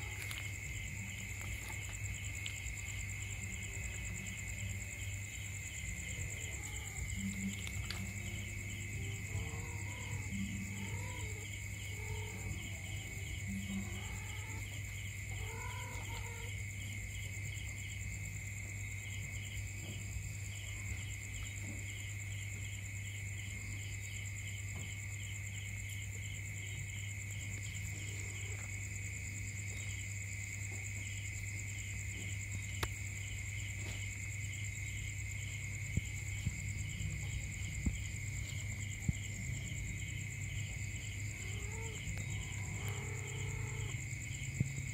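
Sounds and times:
cat calling: 0:00.0 - 0:04.2, 0:05.9 - 0:16.6, 0:41.3 - 0:44.0
insects chirping: 0:00.0 - 0:44.9.

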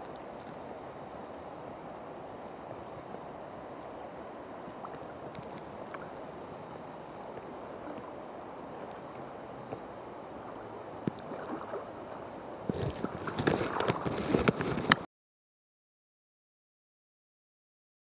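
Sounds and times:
river water rushing: 0:00.0 - 0:14.5
water splashes: 0:04.1 - 0:15.0.

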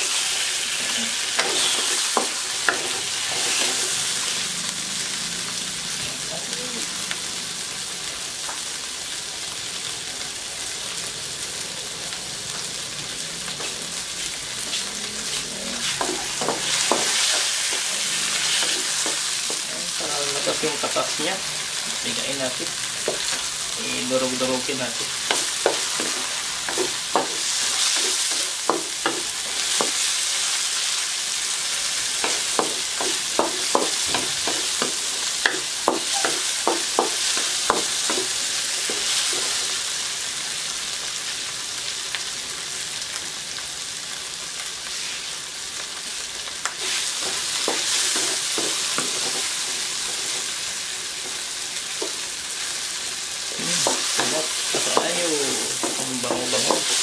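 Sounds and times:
vegetables sizzling in hot oil: 0:00.0 - 0:57.0
wooden spatula tapping and scraping pan: 0:18.5 - 0:19.6, 0:25.0 - 0:30.0, 0:32.2 - 0:39.5, 0:46.8 - 0:50.4, 0:53.7 - 0:57.0.

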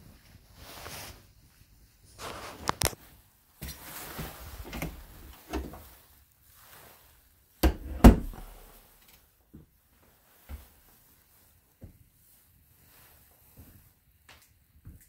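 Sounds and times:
wooden door creaking: 0:04.6 - 0:05.8, 0:07.6 - 0:08.7.

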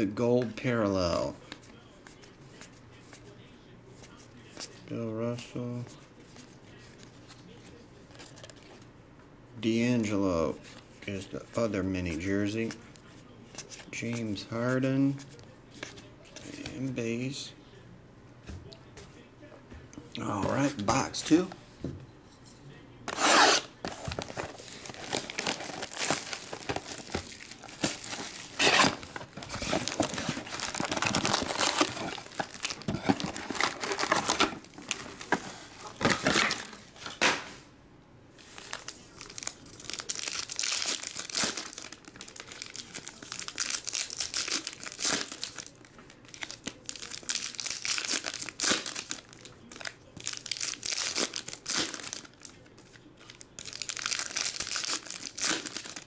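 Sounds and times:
foil packs torn and crinkled: 0:23.1 - 0:36.8, 0:38.5 - 0:56.0.

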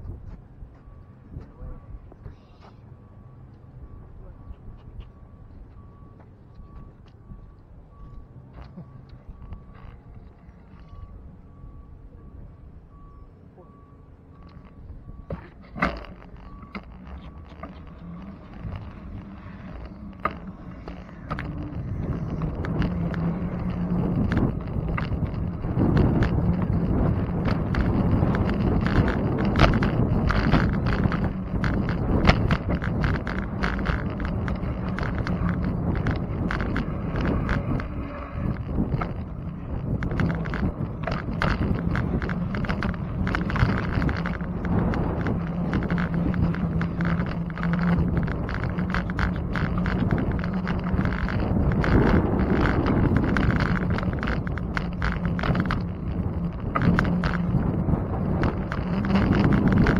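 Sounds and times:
wind rushing over microphone: 0:00.0 - 0:00.7, 0:14.7 - 0:59.9
low steady hum: 0:00.0 - 0:59.9
bicycle clicks and rattles: 0:08.5 - 0:11.1, 0:14.4 - 0:59.9.

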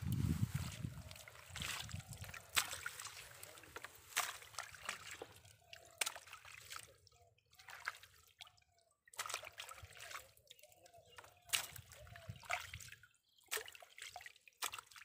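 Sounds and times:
hands rummaging through mud: 0:00.0 - 0:07.0
small water splashes: 0:00.0 - 0:15.0
water dripping and trickling: 0:00.0 - 0:15.0.

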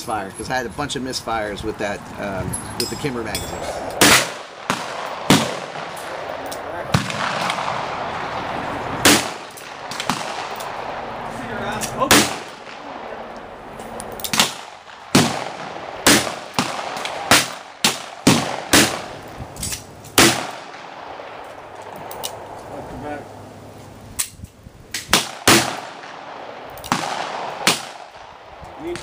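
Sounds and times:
revolver gunshots: 0:03.6 - 0:22.5, 0:25.0 - 0:29.0.

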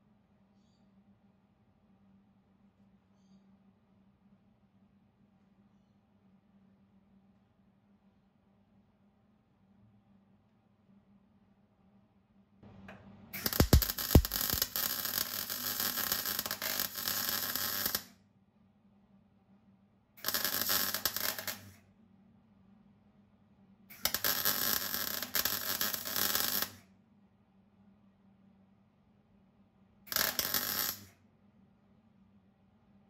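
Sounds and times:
welding arc crackle: 0:13.4 - 0:18.1, 0:20.2 - 0:21.8, 0:23.9 - 0:26.8, 0:30.1 - 0:31.2
sharp low pops: 0:13.5 - 0:14.7.

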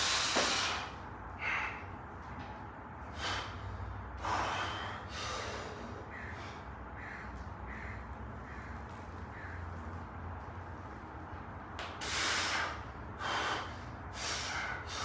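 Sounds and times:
hard sharp breaths: 0:00.0 - 0:02.2, 0:02.9 - 0:08.8, 0:11.8 - 0:15.0.

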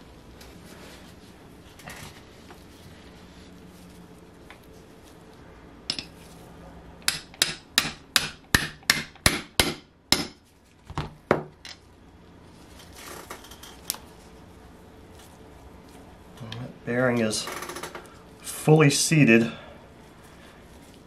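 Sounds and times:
hammer tapping metal: 0:05.9 - 0:06.1, 0:07.0 - 0:10.4.

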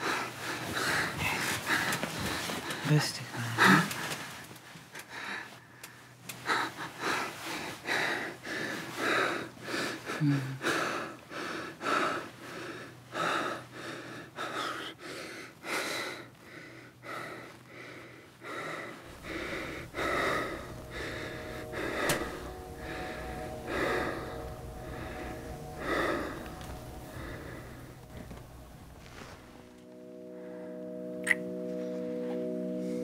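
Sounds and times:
low steady drone: 0:19.0 - 0:33.0.

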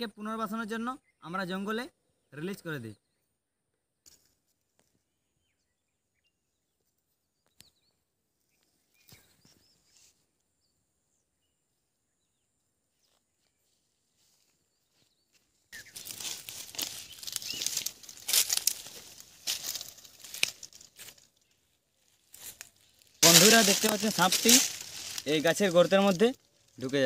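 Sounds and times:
faint bird chirps: 0:04.8 - 0:16.2
dry leaves crackling and rustling: 0:15.8 - 0:27.0.

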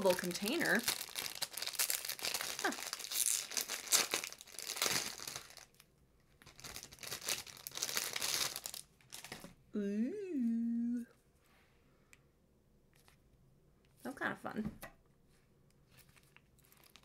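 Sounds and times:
plastic wrapping crinkling and tearing: 0:00.0 - 0:09.5, 0:15.9 - 0:17.0.

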